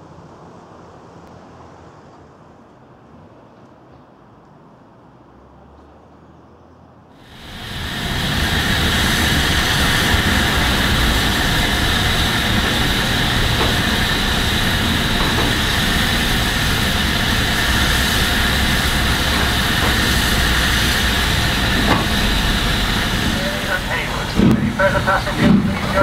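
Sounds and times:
steam locomotive blowing off steam: 7.2s - 26.0s.

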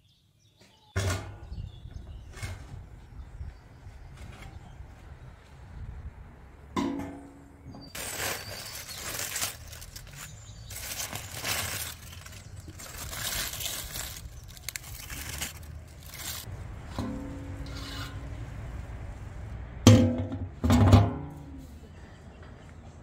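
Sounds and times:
aluminium foil crinkling: 7.9s - 16.5s.

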